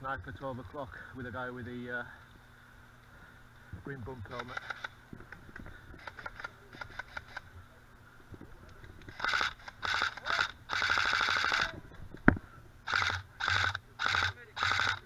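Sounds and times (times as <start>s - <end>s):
airsoft rifle full-auto bursts: 4.3s - 5.0s, 9.1s - 11.8s, 12.8s - 15.0s.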